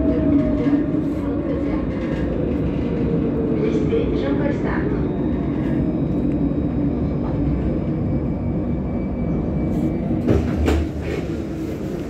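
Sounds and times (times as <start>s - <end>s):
tram clunks: 0.0s - 8.2s, 9.6s - 12.0s
tram rumbling: 0.0s - 12.0s.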